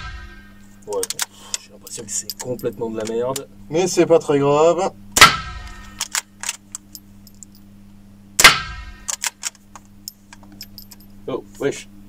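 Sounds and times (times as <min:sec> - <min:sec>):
sharp metallic clicks: 0:00.9 - 0:03.5
rifle shot with ringing tail: 0:05.2 - 0:06.0, 0:08.4 - 0:09.1.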